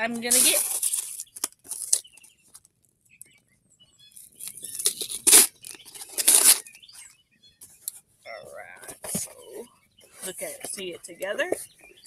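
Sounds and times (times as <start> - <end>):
packaging tearing: 0.3 - 2.1, 4.4 - 6.7.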